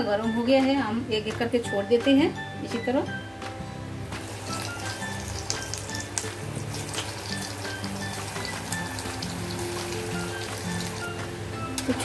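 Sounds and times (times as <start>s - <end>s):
light background music: 0.0s - 12.0s
food deep-frying in oil: 4.0s - 12.0s.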